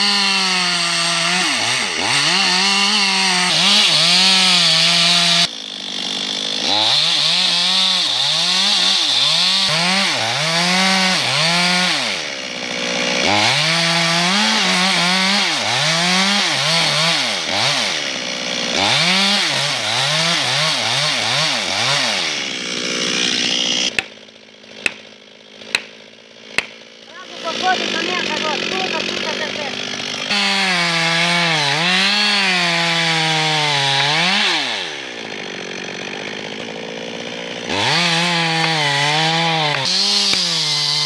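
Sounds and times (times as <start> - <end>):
chainsaw cutting wood: 0.0 - 41.0
sledgehammer striking wedge: 23.9 - 24.2, 24.8 - 25.1, 25.7 - 26.0, 26.6 - 26.8.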